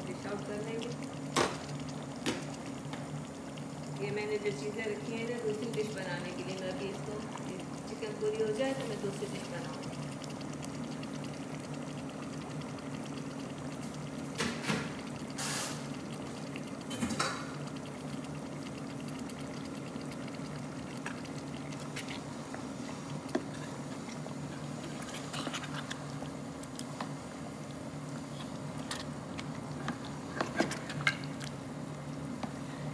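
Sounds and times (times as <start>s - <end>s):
gravy simmering and bubbling: 0.0s - 32.9s
steady low hum: 0.0s - 32.9s
spoon stirring pot: 16.4s - 27.2s, 28.2s - 31.6s.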